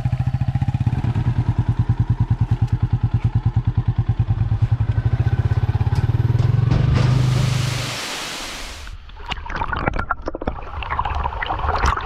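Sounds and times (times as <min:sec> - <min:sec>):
motorcycle engine chugging: 0:00.0 - 0:07.5.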